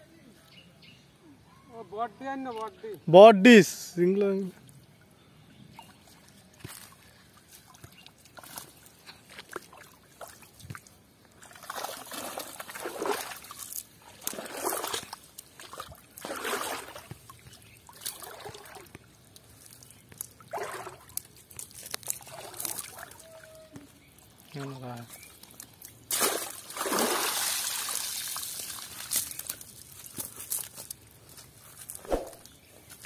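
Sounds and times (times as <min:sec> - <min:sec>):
pond water sloshing and splashing: 0:05.7 - 0:32.7
water trickling off a net: 0:05.8 - 0:31.1.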